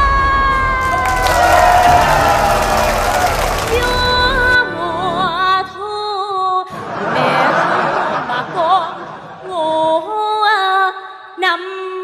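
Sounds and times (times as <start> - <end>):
stage music with held notes: 0.8 - 6.0
studio audience laughter: 6.7 - 9.5.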